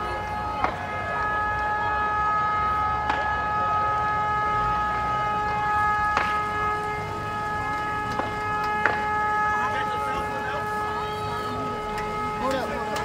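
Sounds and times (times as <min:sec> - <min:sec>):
fire popping: 0:00.0 - 0:13.0
vehicle horn blaring: 0:00.0 - 0:13.0.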